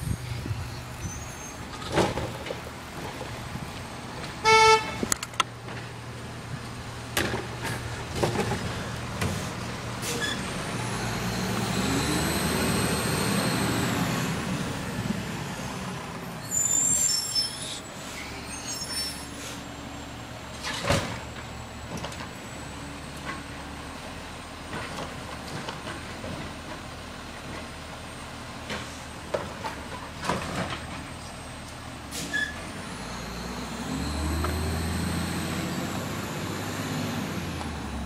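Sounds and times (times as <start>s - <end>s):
high squeaks: 1.0s - 1.7s, 16.4s - 19.4s
garbage truck engine revving: 7.5s - 16.1s, 32.1s - 38.0s.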